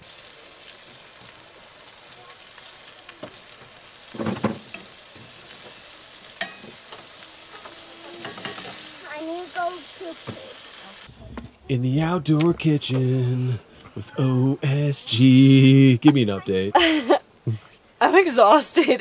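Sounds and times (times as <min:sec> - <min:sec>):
meat sizzling in a pan: 0:00.0 - 0:11.1
person speaking: 0:08.8 - 0:18.9.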